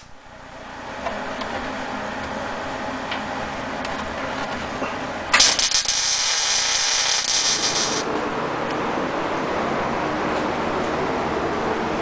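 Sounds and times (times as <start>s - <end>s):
arc welder crackling and sizzling: 0.0s - 8.8s.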